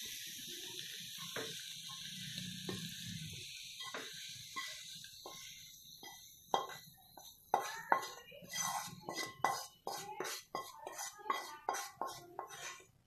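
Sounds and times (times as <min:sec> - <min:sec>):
faint steady hiss: 0:00.0 - 0:09.0
potatoes sliding from pan onto plate: 0:08.4 - 0:12.9.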